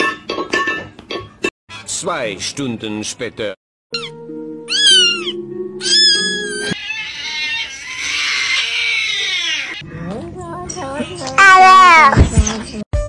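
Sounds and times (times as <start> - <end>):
held music chord: 4.2 - 6.4
cat meowing: 4.7 - 9.8
harsh cat-like sound: 4.7 - 9.8.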